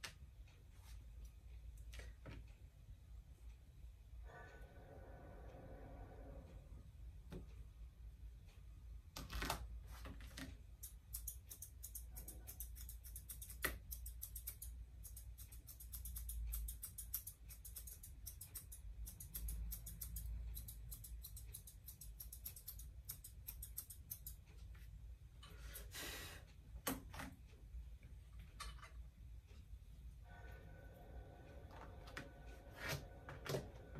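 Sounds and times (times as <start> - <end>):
low room hum: 0.0 - 33.9
scissors snipping fur: 10.8 - 24.4.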